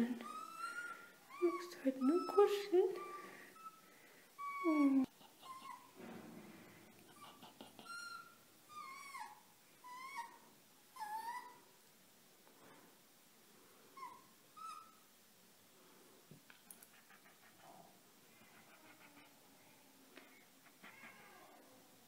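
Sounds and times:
fox kit whimpering squeaks: 0.2s - 3.8s, 4.4s - 5.9s, 7.2s - 10.4s, 14.0s - 15.0s.

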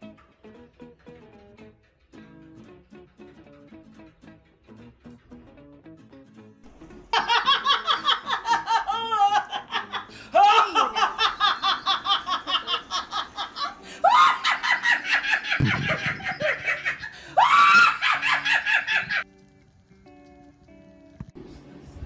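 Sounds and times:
woman laughing loudly: 6.9s - 19.2s.

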